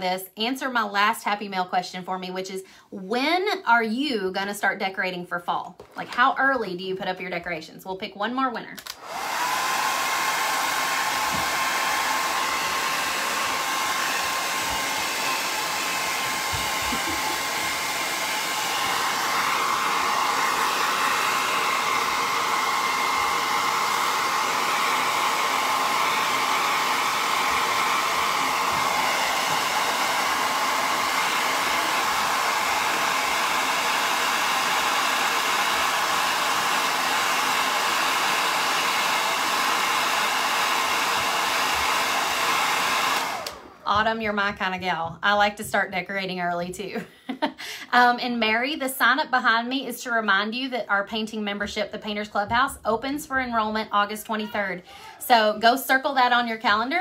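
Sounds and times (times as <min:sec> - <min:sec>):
hair dryer blowing: 0:08.8 - 0:44.7, 0:53.2 - 0:56.8.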